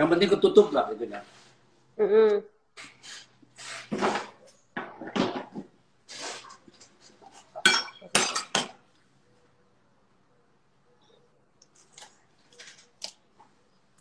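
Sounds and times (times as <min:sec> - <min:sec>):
knocks and scrapes: 0:02.8 - 0:07.6
dishes and cutlery clattering: 0:07.3 - 0:08.8.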